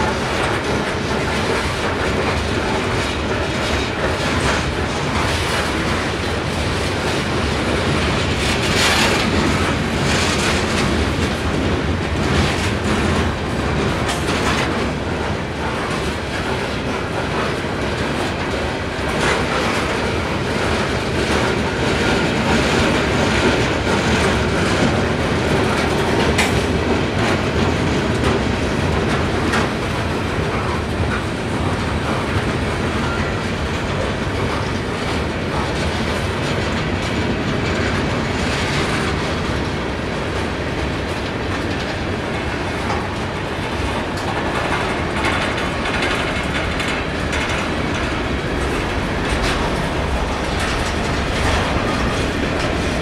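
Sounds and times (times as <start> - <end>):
train wheels rumbling on rail: 0.0 - 53.0
wheels clunking over rail joints: 0.0 - 53.0.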